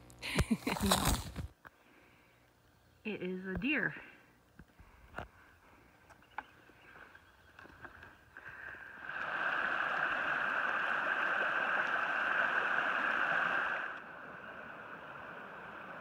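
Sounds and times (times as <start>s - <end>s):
creek rushing over rocks: 8.6s - 16.0s.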